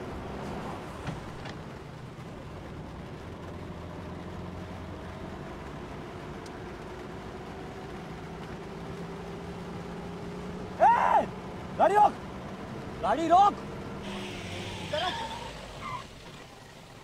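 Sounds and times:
car engine hum and road noise: 0:00.0 - 0:17.0.

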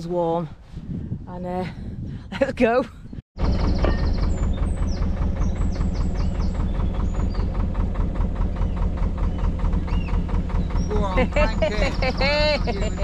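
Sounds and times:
birds chirping faintly: 0:03.1 - 0:13.0
boat diesel engine thudding: 0:03.4 - 0:13.0.

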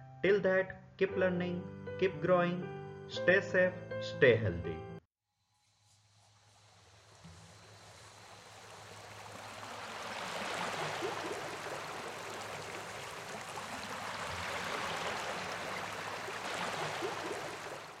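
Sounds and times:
surf washing onto sandy beach: 0:06.7 - 0:18.0.

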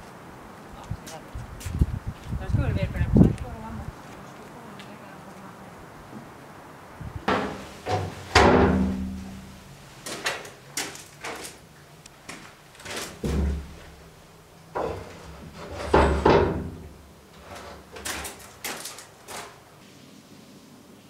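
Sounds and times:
door leaves knocking and banging: 0:07.2 - 0:11.6, 0:12.2 - 0:14.1, 0:14.7 - 0:19.6
metal doors clanking and rattling: 0:07.3 - 0:11.6, 0:12.8 - 0:14.0, 0:14.7 - 0:19.6.

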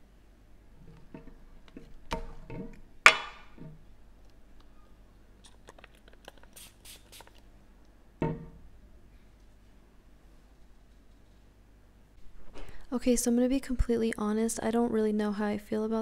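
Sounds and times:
pump spray hisses: 0:06.6 - 0:07.4.

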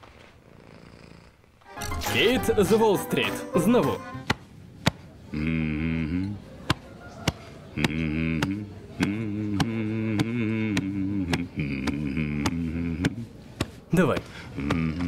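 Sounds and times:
man humming low chant: 0:05.3 - 0:06.4, 0:07.7 - 0:13.4, 0:14.5 - 0:15.0.

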